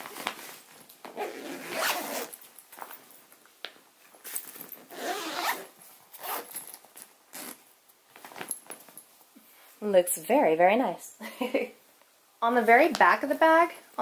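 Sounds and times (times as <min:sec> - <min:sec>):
zipper rasping closed: 0:01.1 - 0:02.4, 0:04.9 - 0:06.6, 0:07.3 - 0:07.6.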